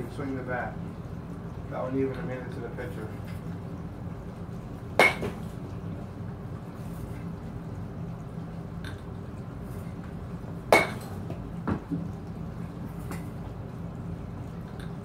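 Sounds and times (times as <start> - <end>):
steady low hum: 0.0 - 15.0
bat cracking ball: 4.9 - 5.5, 10.7 - 12.0.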